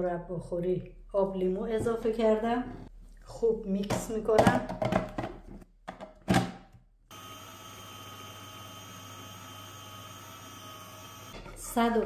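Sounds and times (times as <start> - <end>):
food processor motor humming: 7.1 - 12.0.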